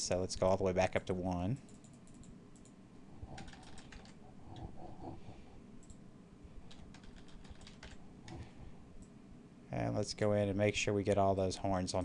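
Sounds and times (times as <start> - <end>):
keyboard and mouse clicking: 1.6 - 4.2, 6.7 - 9.2.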